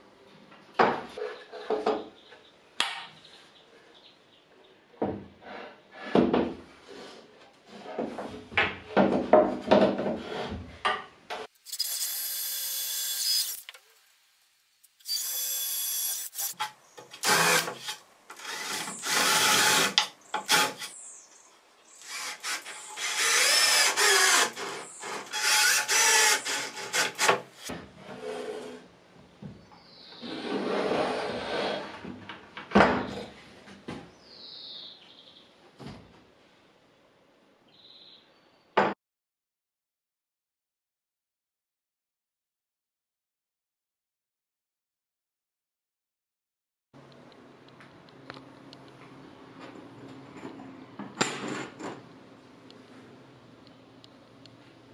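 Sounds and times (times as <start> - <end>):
boards and clamp knocking on bench: 8.0 - 10.2
power tool running: 17.2 - 20.9.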